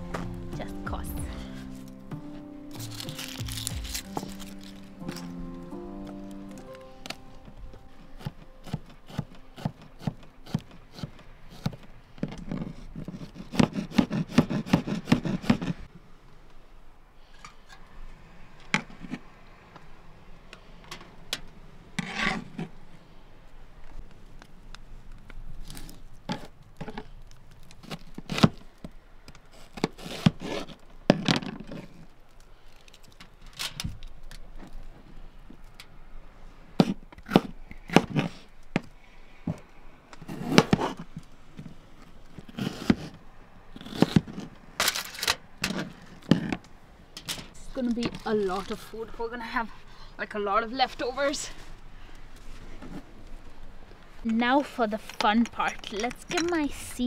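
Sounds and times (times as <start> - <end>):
rustling: 0.0 - 15.9.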